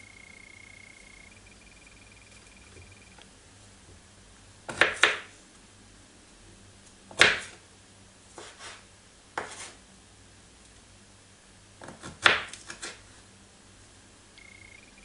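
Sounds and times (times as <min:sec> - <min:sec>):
knife chopping on wooden board: 0:04.7 - 0:05.3, 0:07.1 - 0:07.6, 0:09.4 - 0:09.7, 0:11.8 - 0:13.0.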